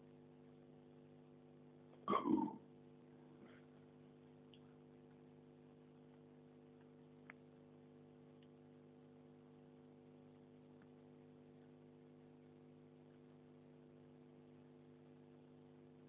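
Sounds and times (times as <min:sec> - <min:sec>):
steady electrical hum: 0:00.0 - 0:16.0
faint ticks: 0:04.3 - 0:15.6.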